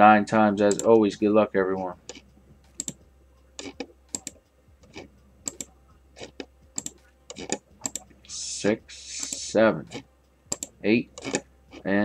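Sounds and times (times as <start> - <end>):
computer mouse clicking: 0.6 - 1.0, 2.8 - 3.0, 3.6 - 8.1, 9.2 - 11.9.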